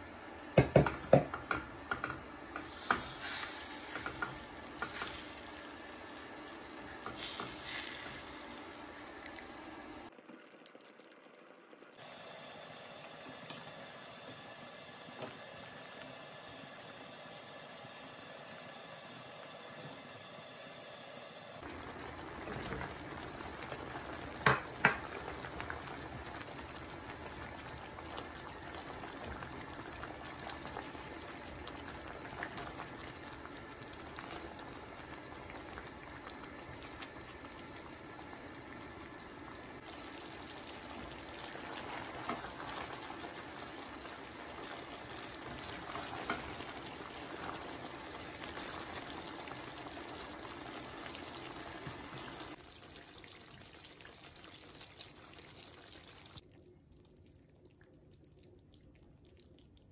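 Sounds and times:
sharp knocks on a pan: 0.6 - 2.2
curry simmering in a pan: 21.6 - 59.9.

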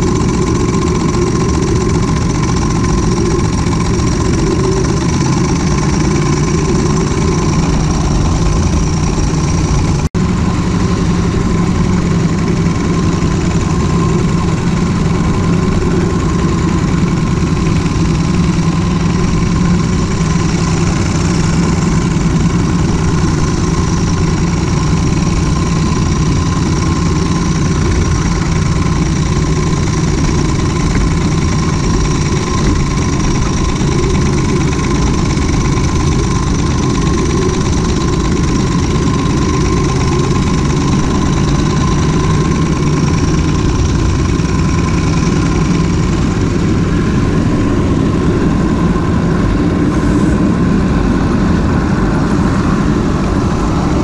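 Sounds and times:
miniature railway locomotive running: 0.0 - 54.0.

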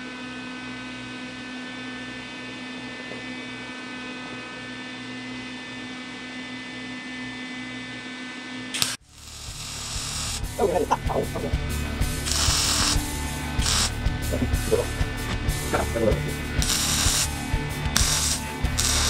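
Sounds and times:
steady electrical hum: 0.0 - 19.0
electrical crackling burst: 8.8 - 10.7, 12.2 - 13.0, 13.6 - 14.0, 16.6 - 17.3, 17.9 - 19.0.

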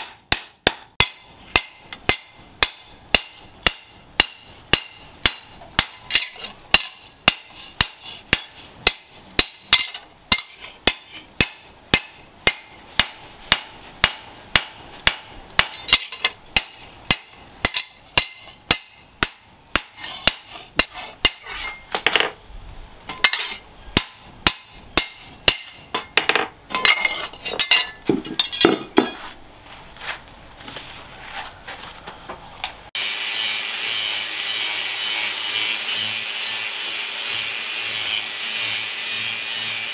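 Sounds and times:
hammer striking steel blade: 0.0 - 22.0, 23.1 - 26.2, 26.8 - 29.2
angle grinder grinding steel: 33.0 - 39.9.

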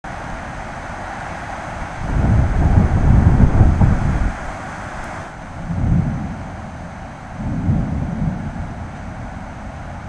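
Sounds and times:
thunder rumbling: 1.8 - 10.0.

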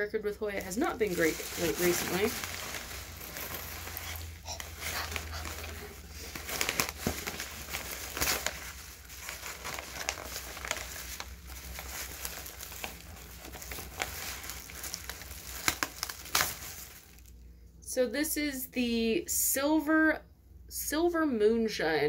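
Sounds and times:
packing paper crumpling: 0.4 - 17.4.

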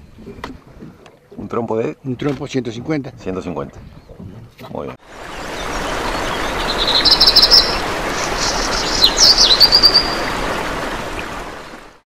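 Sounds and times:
steady rushing noise: 5.0 - 12.0
small birds chirping: 5.2 - 10.4.

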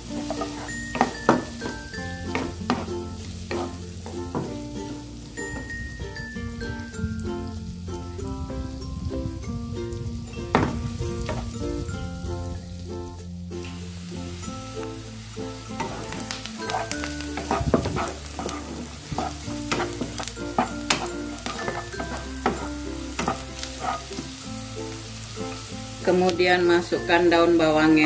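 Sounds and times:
spatula scraping a pan: 0.0 - 5.7, 15.7 - 25.7
background music: 0.0 - 28.0
shallots sizzling in butter: 0.0 - 28.0.

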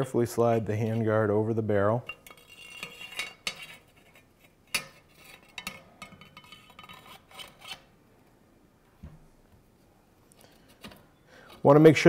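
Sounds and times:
metal scraping and clinking: 2.0 - 7.9.

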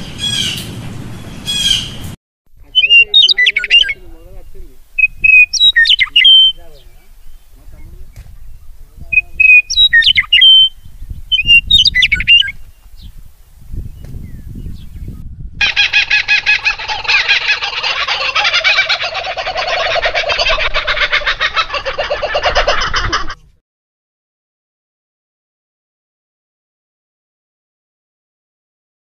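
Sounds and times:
nestlings begging calls: 0.2 - 0.7, 1.4 - 13.2, 13.9 - 23.2
songbird whistled chirps: 2.8 - 4.0, 5.0 - 6.6, 8.2 - 13.1.

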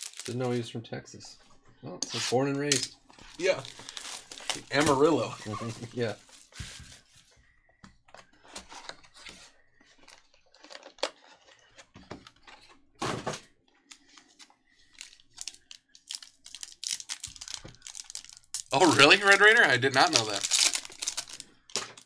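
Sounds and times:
foil pack rustling: 0.0 - 0.5, 3.2 - 7.3, 14.9 - 22.0.

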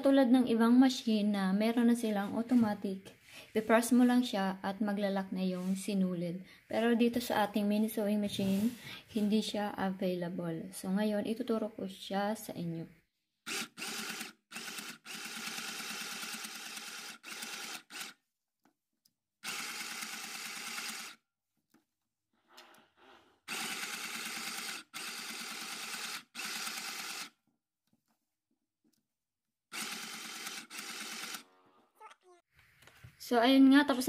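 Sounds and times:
sewing machine stitching: 13.5 - 18.2, 19.4 - 21.2, 23.5 - 27.3, 29.7 - 31.5.

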